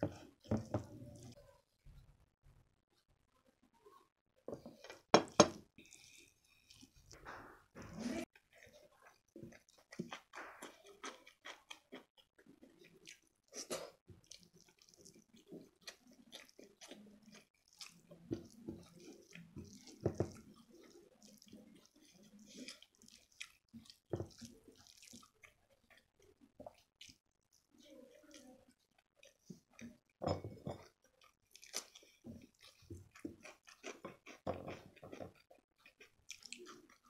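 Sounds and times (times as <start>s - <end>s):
chewing and lip smacking: 8.4s - 30.0s, 30.8s - 37.0s.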